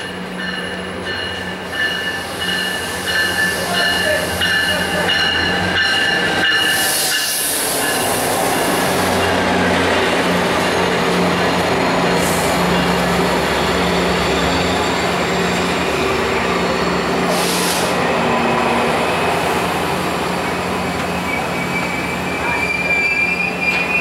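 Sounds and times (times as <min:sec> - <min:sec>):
train cars rolling on track: 0:00.0 - 0:24.0
short air hisses: 0:17.3 - 0:18.0
high brake squeal: 0:21.0 - 0:24.0.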